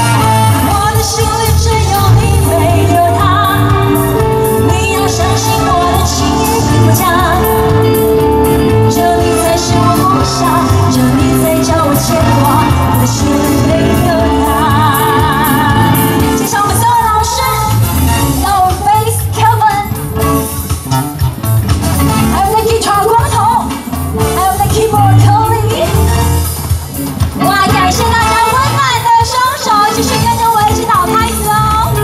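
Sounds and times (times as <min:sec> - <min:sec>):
woman singing into microphone: 0:00.0 - 0:20.0, 0:22.3 - 0:26.3, 0:27.4 - 0:32.0
amplified band with drum beat: 0:00.0 - 0:32.0.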